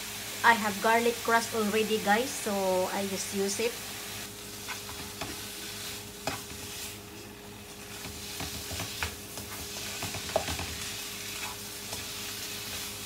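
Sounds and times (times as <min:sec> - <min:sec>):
chicken sizzling in a frying pan: 0:00.0 - 0:13.0
spatula scraping and knocking pan: 0:04.6 - 0:05.4, 0:06.2 - 0:06.9, 0:07.9 - 0:13.0.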